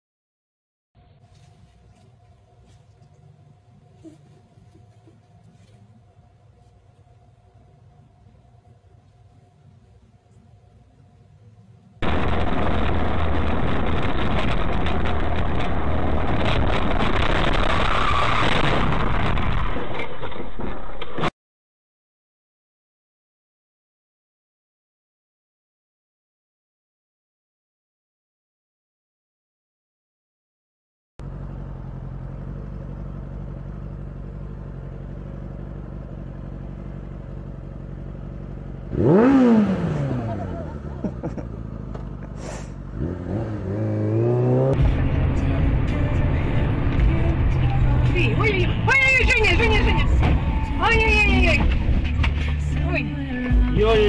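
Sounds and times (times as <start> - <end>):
car road and engine noise: 4.7 - 21.2, 31.2 - 54.0
motorcycle engine idling: 31.2 - 39.0.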